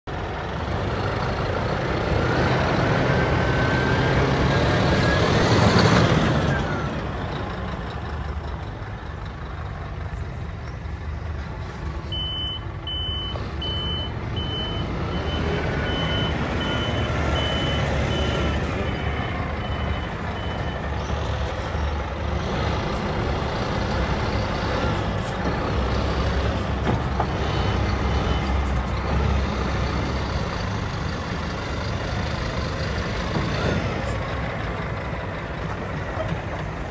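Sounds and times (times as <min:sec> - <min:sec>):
diesel truck engine revving: 0:00.1 - 0:36.9
reversing alarm beeping: 0:12.1 - 0:20.9.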